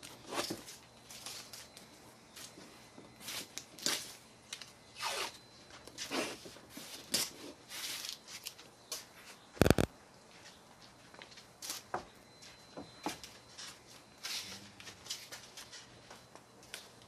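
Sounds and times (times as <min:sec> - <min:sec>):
tape pressed down by hand: 0:09.6 - 0:09.9.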